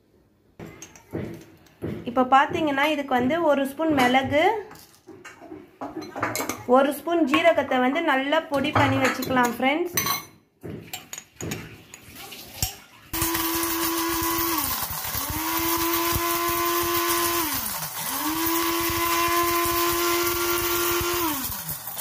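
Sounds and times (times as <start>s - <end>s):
electric grinder whirring: 13.2s - 22.0s.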